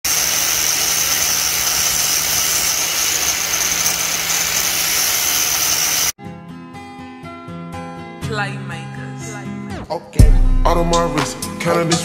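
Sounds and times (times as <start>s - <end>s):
angle grinder cutting steel: 0.0s - 6.2s.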